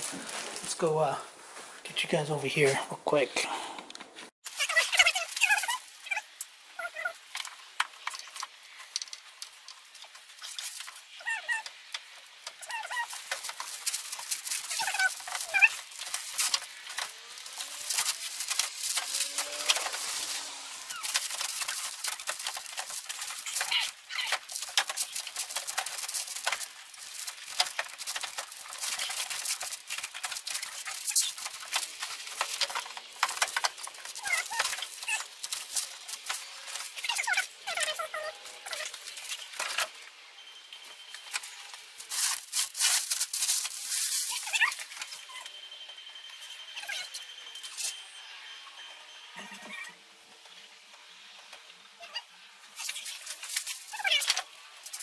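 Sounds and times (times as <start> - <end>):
plastic wrap crinkling: 0.0 - 0.8, 4.5 - 40.0, 41.2 - 45.5, 52.7 - 55.0.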